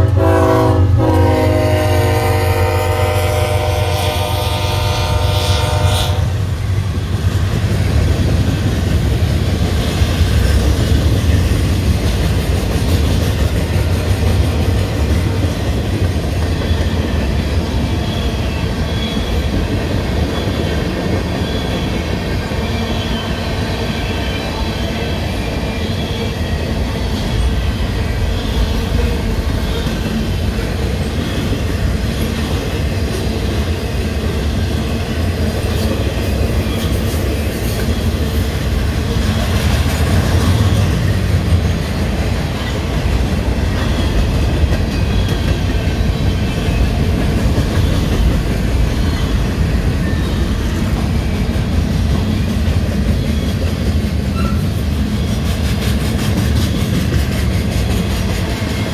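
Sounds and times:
train horn: 0.0 - 6.5
faint high wheel squeal: 54.3 - 55.3.

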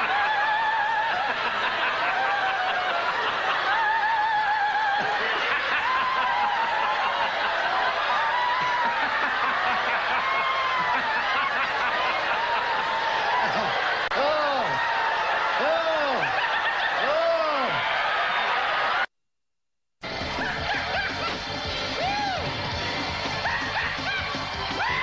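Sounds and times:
congregation laughing: 0.0 - 19.1, 20.0 - 25.0
high wavering laughs: 15.6 - 17.8, 20.2 - 21.4.

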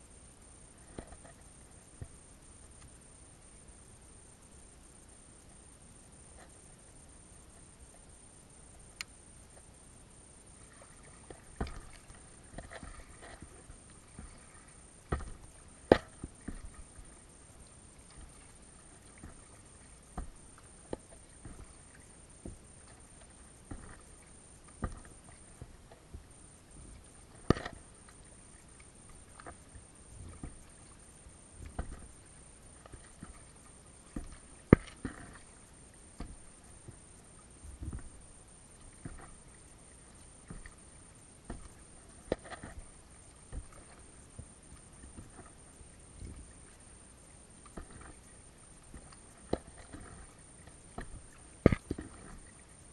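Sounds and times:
paddle splashes: 10.6 - 46.9, 47.5 - 52.9
paddle tapping: 11.2 - 17.2, 18.0 - 31.0, 31.6 - 35.6, 36.2 - 37.0, 37.6 - 39.5, 40.4 - 40.8, 41.4 - 46.8, 47.6 - 52.6
paddle knocking against hull: 11.4 - 17.1, 19.0 - 22.7, 23.6 - 24.1, 24.8 - 27.8, 29.1 - 30.8, 31.6 - 32.3, 34.1 - 35.5, 36.2 - 37.0, 37.6 - 39.4, 41.4 - 46.6, 47.6 - 48.2, 48.9 - 52.5.

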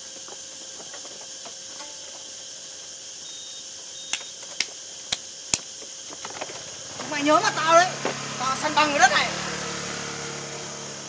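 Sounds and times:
faint steady tone: 1.7 - 4.5.

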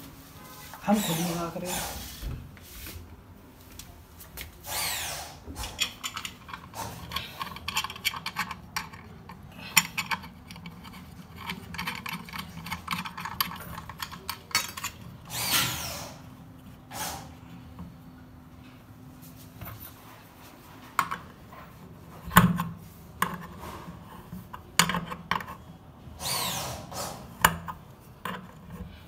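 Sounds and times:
sink strainer clicking and scraping: 5.6 - 15.3.

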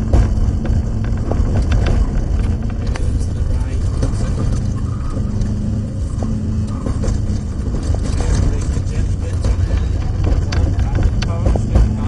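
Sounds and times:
rally car engine in cabin: 0.0 - 12.0
road and tyre rumble: 0.0 - 12.0.

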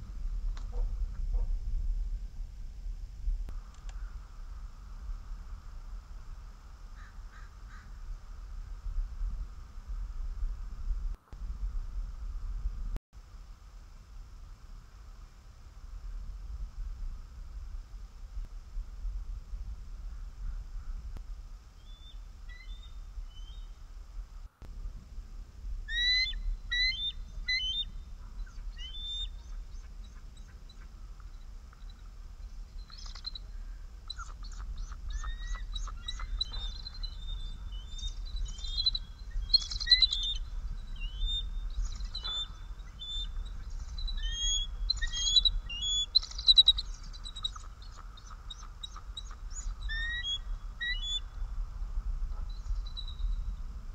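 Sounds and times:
low wind rumble: 0.0 - 53.9
eagles chirping: 25.9 - 32.1, 32.8 - 51.4.

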